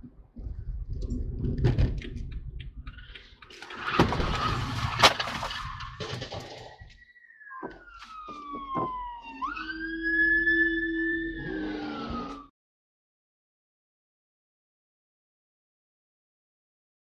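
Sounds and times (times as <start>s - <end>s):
car crash impacts: 3.8s - 6.9s
siren-like wail: 4.3s - 12.5s.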